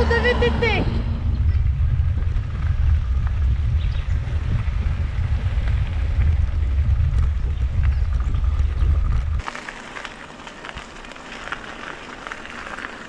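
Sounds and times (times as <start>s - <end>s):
wind buffeting microphone: 0.0s - 9.5s
bike ticks and rattles: 1.2s - 13.0s.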